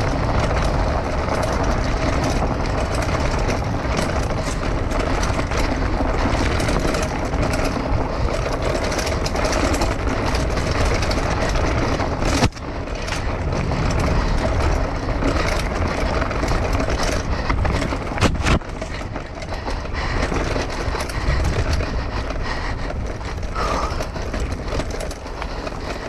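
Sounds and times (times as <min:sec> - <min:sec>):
bike rattling and clicking: 0:00.0 - 0:26.0
mountain bike rumbling on dirt trail: 0:00.0 - 0:26.0.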